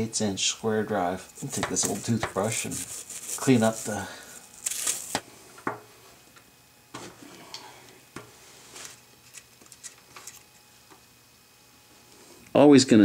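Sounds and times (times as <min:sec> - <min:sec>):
toothbrush scrubbing metal: 0:01.3 - 0:04.0.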